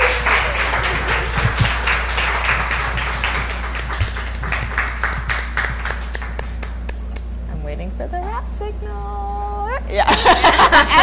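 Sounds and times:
audience applauding: 0:00.0 - 0:07.1
steady low hum: 0:00.0 - 0:11.0.

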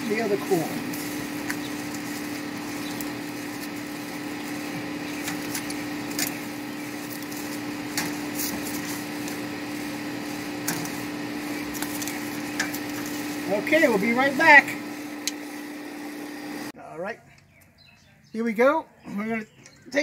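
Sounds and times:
steady machine hum: 0:00.0 - 0:16.8
metal tongs clicking on grill grate: 0:05.1 - 0:09.4, 0:10.6 - 0:11.0, 0:11.7 - 0:13.2, 0:15.2 - 0:15.4.

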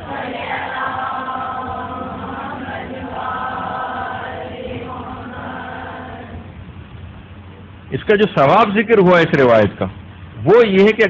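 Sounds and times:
melodic chanting voice: 0:00.0 - 0:06.8.

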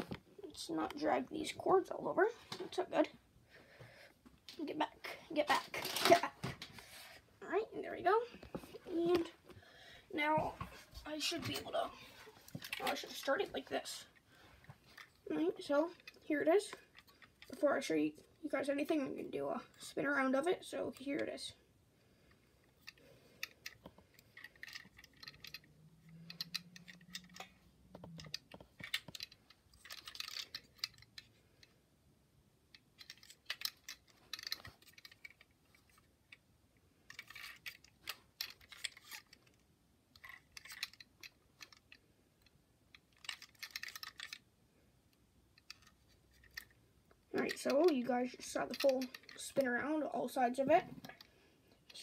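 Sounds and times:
toy truck clicking and rattling: 0:05.4 - 0:06.4, 0:12.4 - 0:14.1, 0:14.9 - 0:17.9, 0:22.7 - 0:31.8, 0:32.7 - 0:44.5, 0:45.5 - 0:52.0.

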